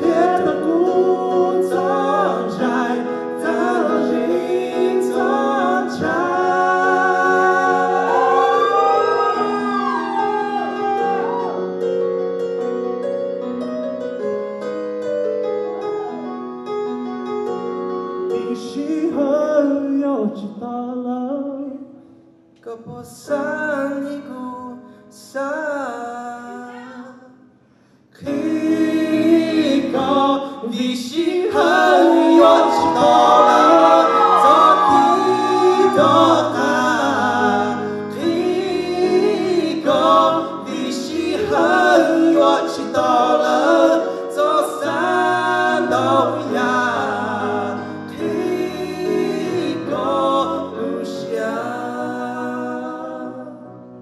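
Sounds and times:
man singing into a microphone: 0.0s - 9.7s, 18.3s - 22.0s, 22.6s - 27.4s, 28.2s - 48.2s
electronic keyboard chords: 0.0s - 18.6s, 31.6s - 50.9s.

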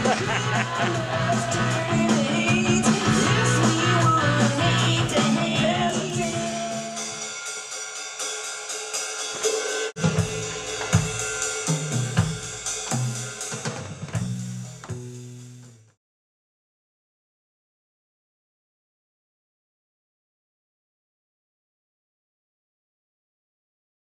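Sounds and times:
held electric bass notes: 0.0s - 7.0s, 14.1s - 15.9s
rock band playing: 0.0s - 15.8s
drum kit: 0.0s - 16.0s.

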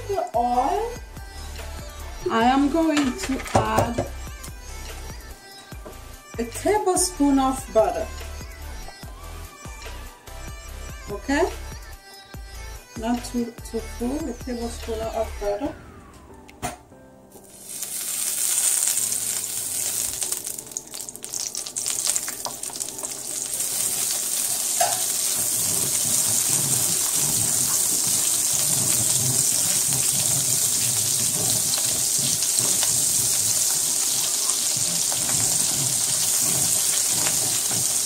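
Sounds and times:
butter sizzling in a frying pan: 17.4s - 38.0s
wooden spoon stirring: 17.4s - 38.0s.

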